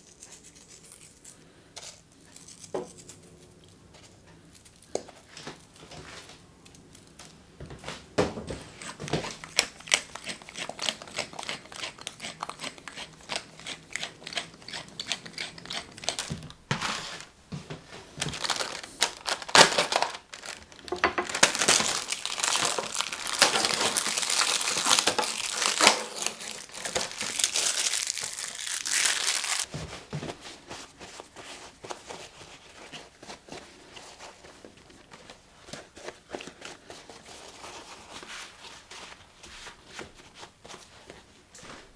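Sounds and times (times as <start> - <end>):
plastic film crinkling and tearing: 15.2 - 17.3, 18.2 - 29.7.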